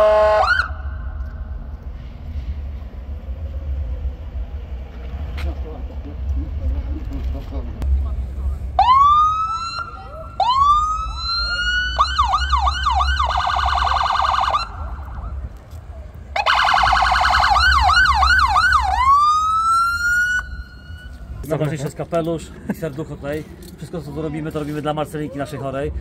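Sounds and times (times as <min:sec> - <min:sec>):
electronic siren wailing and yelping: 0:08.8 - 0:14.9, 0:16.4 - 0:21.1.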